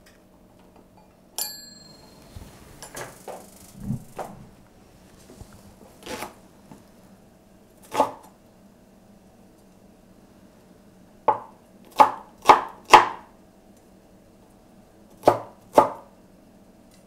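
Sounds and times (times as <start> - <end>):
cleaver chopping on wooden board: 11.3 - 13.2.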